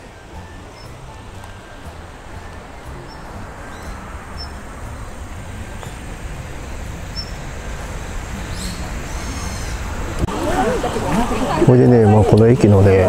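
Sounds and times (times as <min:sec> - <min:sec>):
high bird chirps: 0:00.0 - 0:06.0, 0:07.0 - 0:07.7, 0:08.3 - 0:10.0
low rumble: 0:00.0 - 0:11.3.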